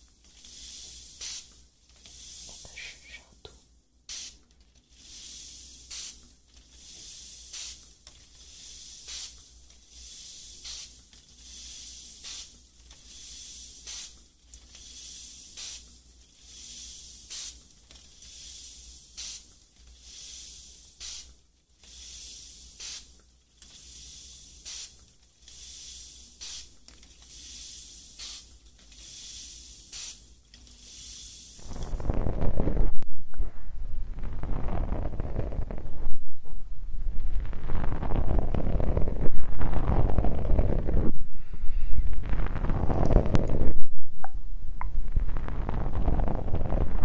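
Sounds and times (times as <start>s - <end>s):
soft strokes on microphone: 2.0s - 3.5s, 30.8s - 47.0s.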